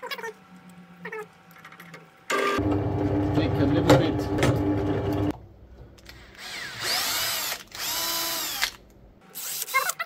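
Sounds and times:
cordless drill motor spinning: 0:06.2 - 0:08.8, 0:09.4 - 0:09.7.

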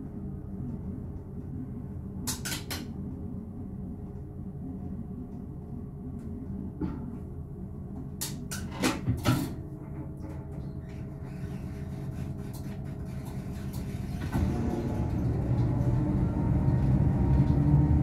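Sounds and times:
train rumble from cab: 0:12.6 - 0:18.0.

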